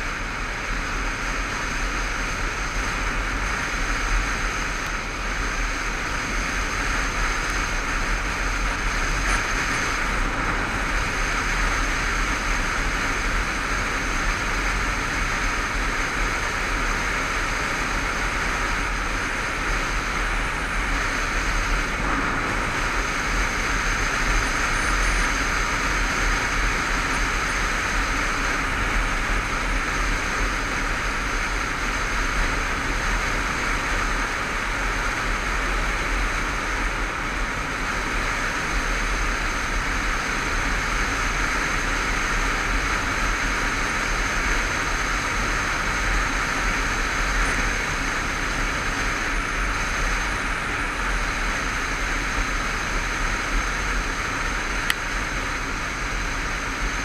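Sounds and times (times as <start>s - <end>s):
motorcycle engine and road noise: 0.0s - 57.0s
wind rushing over microphone: 2.3s - 41.1s.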